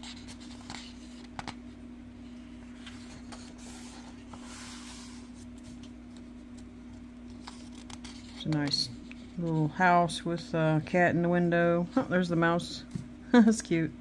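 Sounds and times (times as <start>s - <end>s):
paper rustling: 2.6s - 9.5s.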